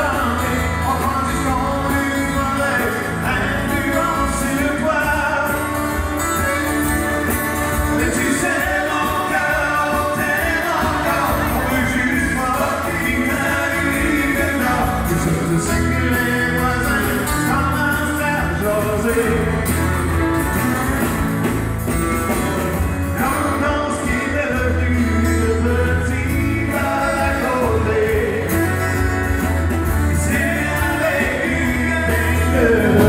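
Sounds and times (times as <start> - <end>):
man singing: 0.0 - 21.2, 22.8 - 33.0
acoustic guitars strummed: 0.0 - 33.0
fiddle: 18.2 - 24.8.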